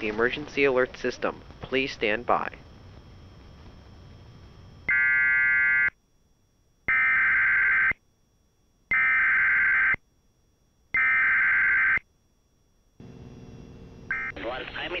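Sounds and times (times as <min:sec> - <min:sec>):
screeching digital data tones: 0:14.1 - 0:14.4.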